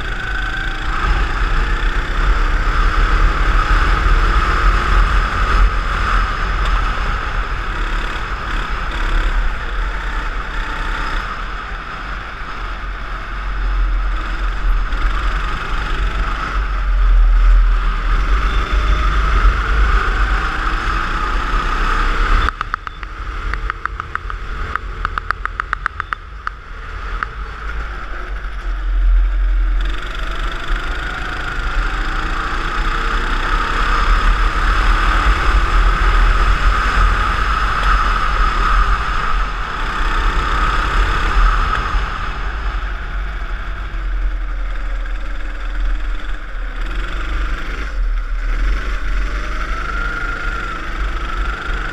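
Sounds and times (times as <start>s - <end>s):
kart engine running hard: 0.0s - 51.9s
rapid clicks: 22.5s - 26.6s.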